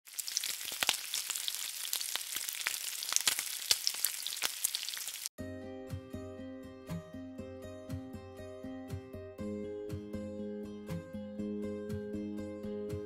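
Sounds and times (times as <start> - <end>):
hot oil sizzling and popping: 0.0 - 5.4
music: 5.4 - 13.0.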